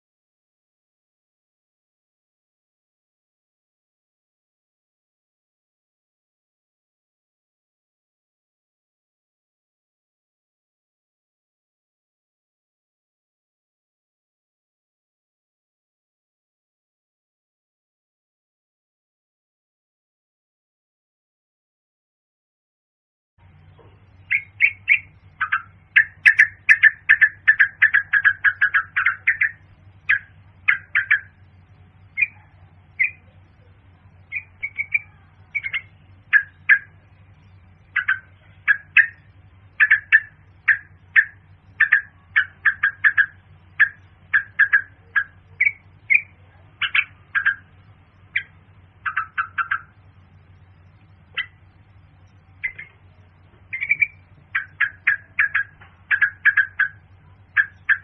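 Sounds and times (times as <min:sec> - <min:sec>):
bird chirping: 0:23.4 - 0:58.0
faint low hum: 0:23.4 - 0:58.0.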